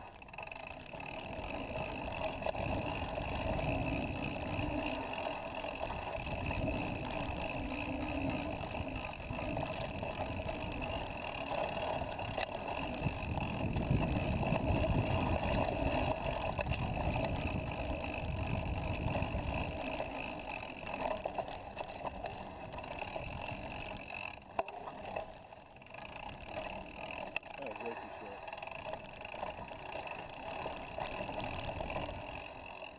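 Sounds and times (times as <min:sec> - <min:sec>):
bike tyres rumbling on dirt: 0:00.0 - 0:32.9
light rattles and clicks: 0:00.0 - 0:32.9
wind noise: 0:12.0 - 0:19.9.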